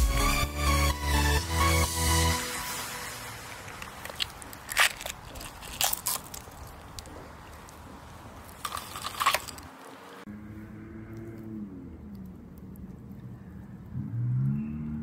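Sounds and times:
sharp crackles and pops: 0:03.4 - 0:10.0.

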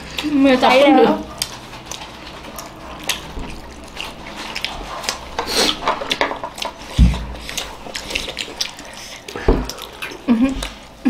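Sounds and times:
people chewing: 0:00.0 - 0:11.0
plates clicking and scraping: 0:05.0 - 0:06.9.

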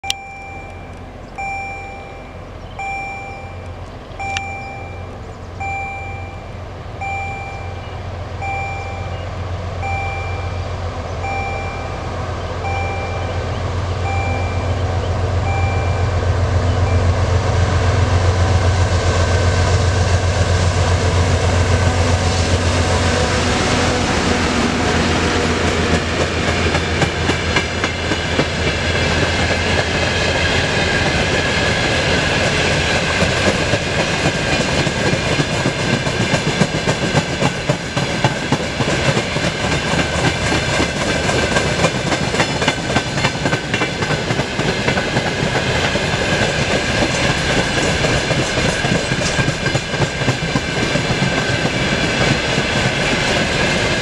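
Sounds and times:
level crossing bell beeping: 0:00.0 - 0:17.3
diesel locomotive engines droning: 0:00.0 - 0:54.0
train wheels clattering on rails: 0:18.2 - 0:54.0.

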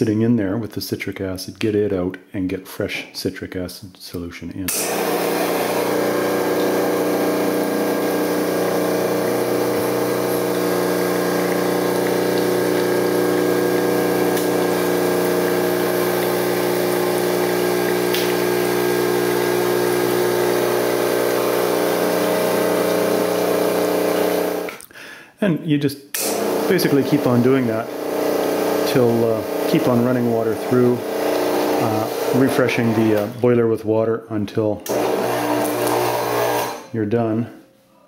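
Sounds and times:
espresso machine pump buzzing: 0:04.8 - 0:24.7, 0:26.2 - 0:33.3, 0:34.8 - 0:36.9.

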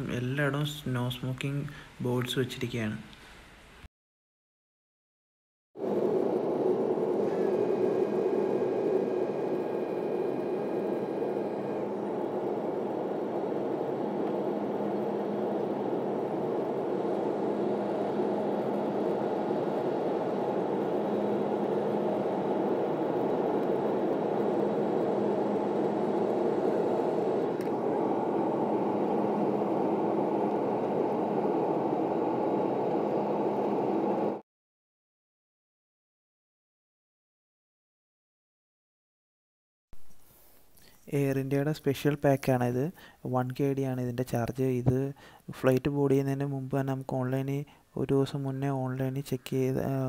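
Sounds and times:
jet engines droning: 0:05.8 - 0:34.4
rushing airflow: 0:05.8 - 0:34.4.

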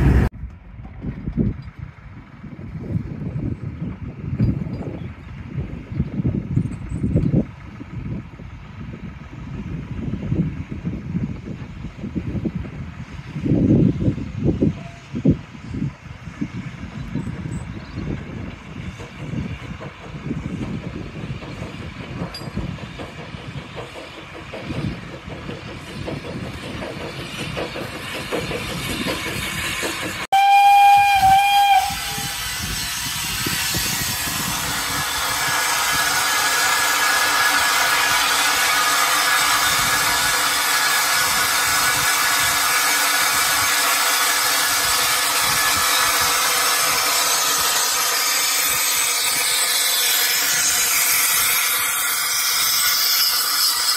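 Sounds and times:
wind on microphone: 0:00.0 - 0:23.8, 0:30.9 - 0:36.5
train coaches rumbling past: 0:00.0 - 0:53.9
escaping steam hissing: 0:27.4 - 0:53.9
steam locomotive whistle: 0:30.3 - 0:33.2.

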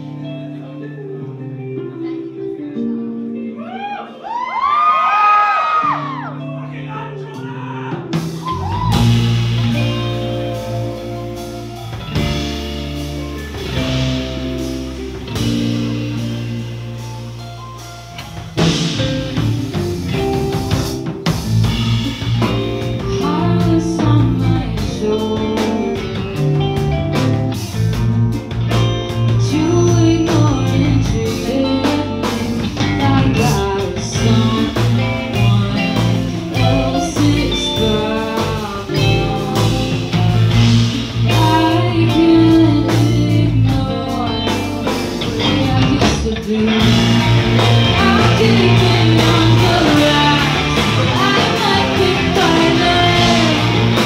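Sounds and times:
guitar chords ringing: 0:00.0 - 0:04.2, 0:06.2 - 0:54.0
rock band playing: 0:00.0 - 0:54.0
woman singing: 0:22.4 - 0:26.4, 0:29.3 - 0:54.0.

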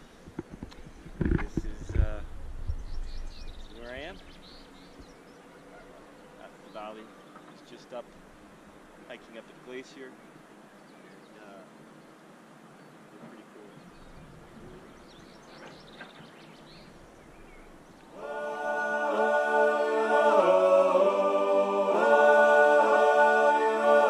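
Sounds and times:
faint outdoor background: 0:00.0 - 0:24.0
unaccompanied choir singing: 0:18.1 - 0:24.0.

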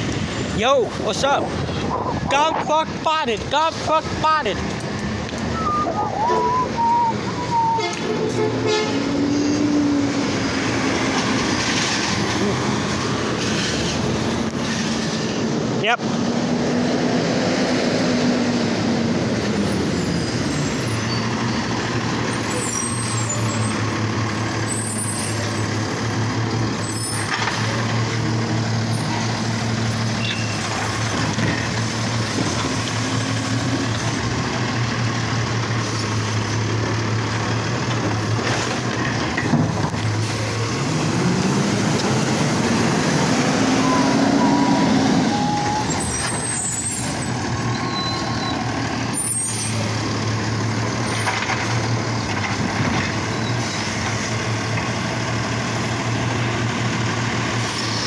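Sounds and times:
garbage truck engine running: 0:18.6 - 0:58.0.

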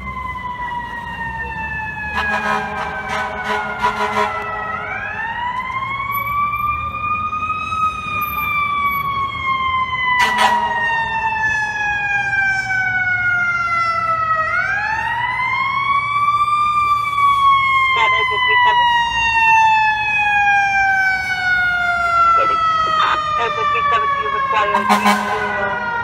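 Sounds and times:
siren wailing: 0:00.0 - 0:26.0
short horn blasts: 0:02.2 - 0:04.6, 0:10.2 - 0:10.8, 0:24.7 - 0:25.5.

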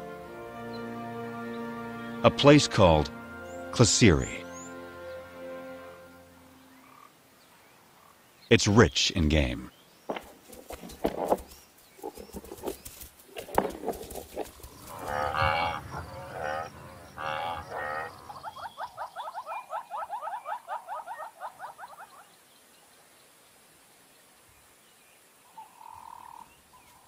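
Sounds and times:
repeated chirping calls: 0:08.5 - 0:22.2
buffalo deep lowing calls: 0:14.4 - 0:18.8.

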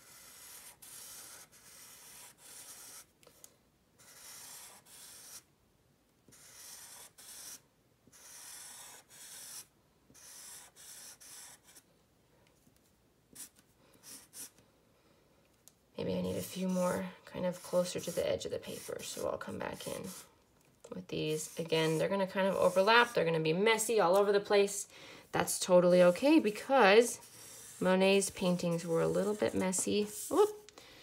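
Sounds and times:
marker drawing on paper: 0:00.0 - 0:03.1, 0:04.0 - 0:05.5, 0:06.3 - 0:11.8, 0:13.3 - 0:14.6, 0:16.2 - 0:20.3, 0:21.2 - 0:23.4, 0:25.9 - 0:30.6.

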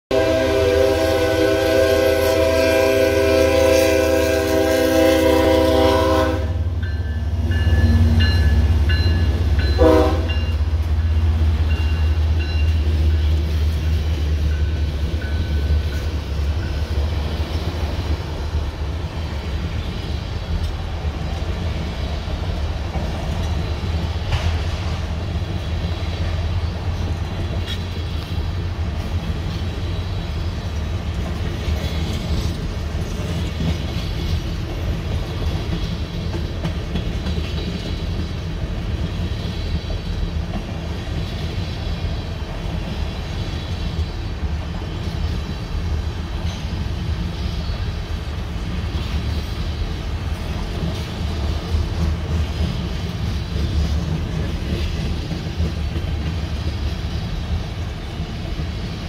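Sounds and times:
locomotive horn blast: 0:00.1 - 0:06.8, 0:09.6 - 0:10.7
deep rumble of train: 0:00.1 - 0:59.0
rail cars clattering on rails: 0:00.1 - 0:59.0
crossing bell dinging: 0:06.6 - 0:17.2.

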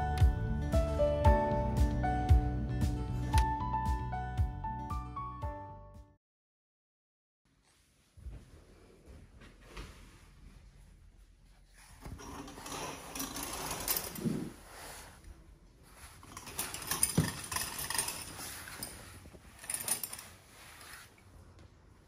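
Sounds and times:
curtain runners rattling along track: 0:12.2 - 0:14.5, 0:16.2 - 0:20.8.

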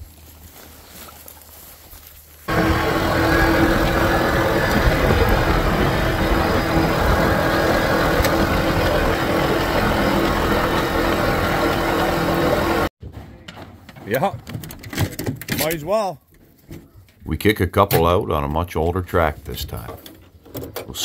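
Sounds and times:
vehicle engine drone: 0:02.5 - 0:12.9
wind and road noise: 0:02.5 - 0:12.9.

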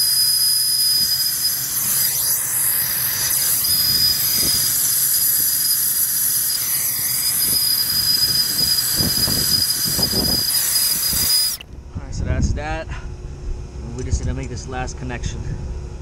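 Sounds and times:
thin high whistle: 0:00.0 - 0:11.6
torch burning with loud hiss: 0:00.0 - 0:11.6.

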